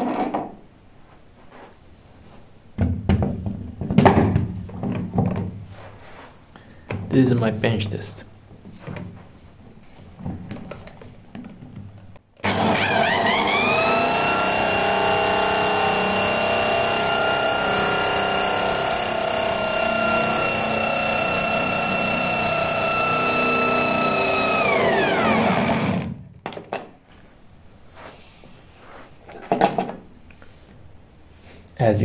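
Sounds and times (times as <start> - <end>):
electric drill whining: 12.4 - 26.2.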